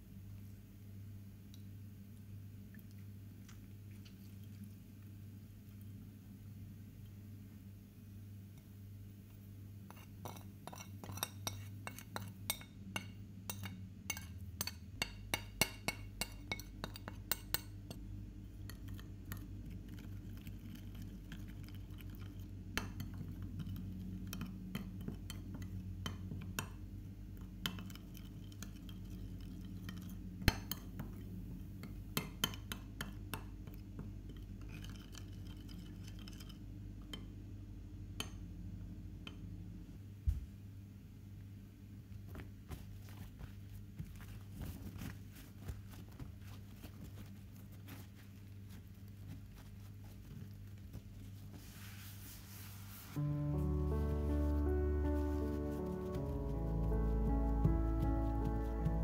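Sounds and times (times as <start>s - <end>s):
low steady hum: 0.0s - 59.0s
metal spoon clinking ceramic bowl: 9.9s - 18.0s.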